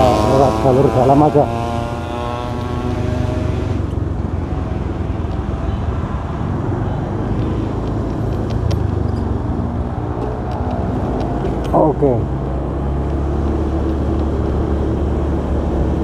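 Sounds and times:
scooter engine running: 0.0s - 5.8s
road noise: 0.0s - 16.0s.

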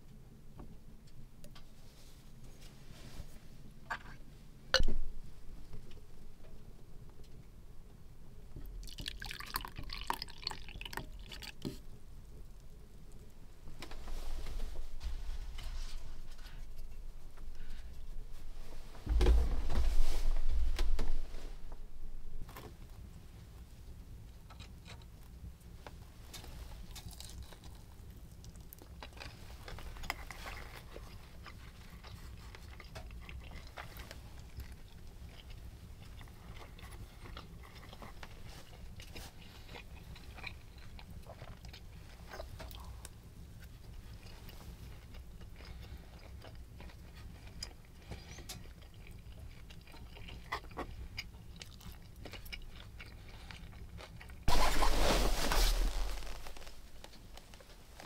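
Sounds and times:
low steady hum: 0.0s - 58.0s
person chewing food: 8.7s - 11.9s, 26.4s - 55.0s.

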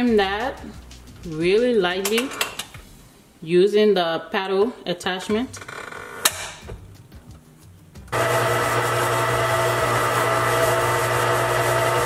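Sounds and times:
stand mixer motor humming: 8.1s - 12.0s.

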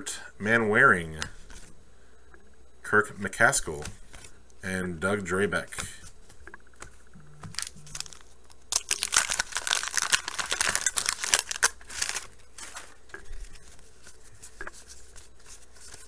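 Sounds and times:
wax paper wrapper crinkling: 7.5s - 16.0s.

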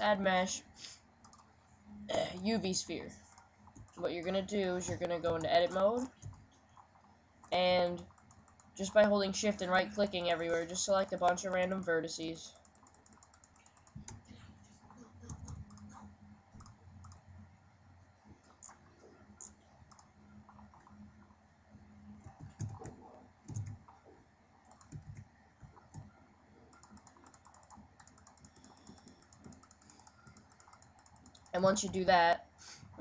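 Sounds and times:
mouse and keyboard clicking: 12.5s - 14.2s, 15.2s - 17.2s, 26.7s - 32.0s.

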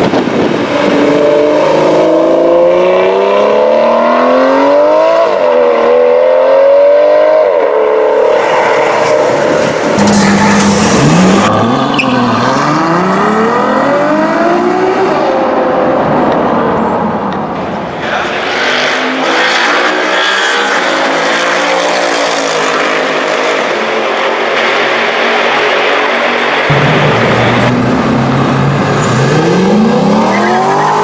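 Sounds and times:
sports car accelerating hard: 0.0s - 31.0s
second car accelerating away: 18.2s - 31.0s.

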